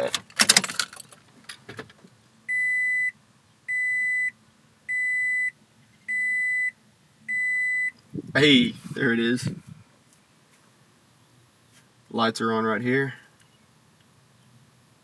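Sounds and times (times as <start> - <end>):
ignition keys jingling: 0.0 - 1.7
dashboard warning chime beeping: 2.5 - 8.0.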